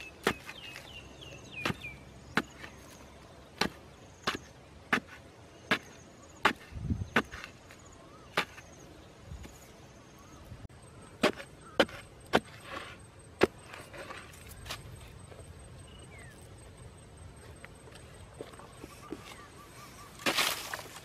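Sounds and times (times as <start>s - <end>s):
digging pole knocking hard soil: 0.0s - 0.9s, 1.6s - 8.7s, 11.1s - 14.8s, 20.2s - 21.0s
loose earth scraping: 0.0s - 9.8s, 11.0s - 16.6s, 17.4s - 21.0s.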